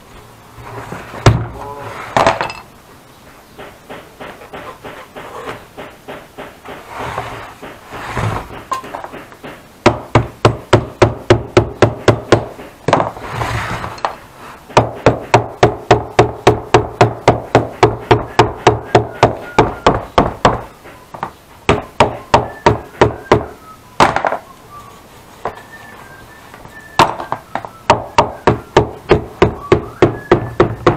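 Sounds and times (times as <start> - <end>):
soft noise: 0.0 - 3.5, 6.6 - 9.4, 13.0 - 14.7.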